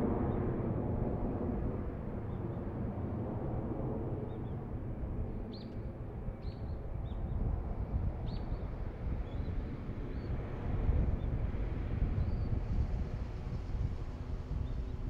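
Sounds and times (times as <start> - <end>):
jet engine rumble: 0.0 - 15.0.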